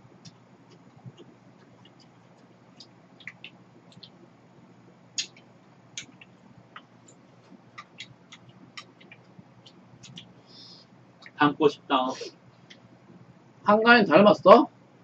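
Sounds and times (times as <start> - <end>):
chewing: 0.2 - 4.2, 5.2 - 10.4.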